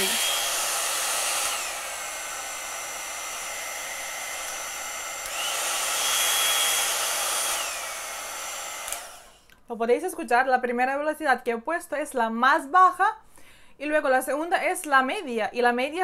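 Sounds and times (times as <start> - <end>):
hot-air brush motor whine: 0.0 - 9.5.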